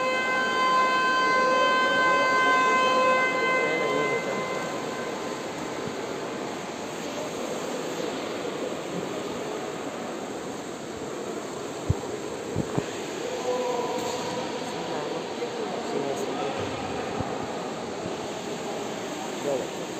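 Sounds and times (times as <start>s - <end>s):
horn blast: 0.0s - 7.0s
pool hall noise: 0.0s - 19.9s.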